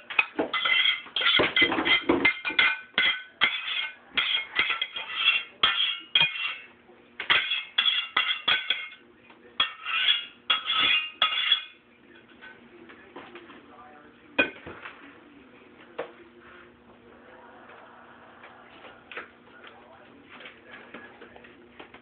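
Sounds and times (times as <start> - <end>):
metal spoon scraping a pot: 0.0 - 6.7, 7.3 - 9.0, 9.6 - 11.8.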